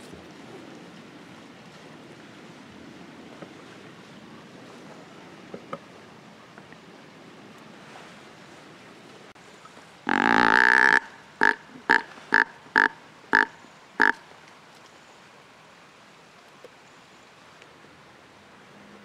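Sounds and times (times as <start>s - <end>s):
deer call blown: 10.1s - 14.2s.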